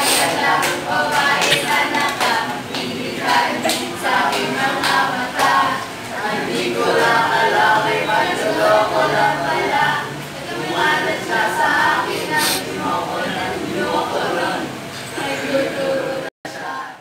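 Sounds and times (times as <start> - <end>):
group singing a cappella: 0.0 - 17.0
claps keeping time: 0.2 - 6.2.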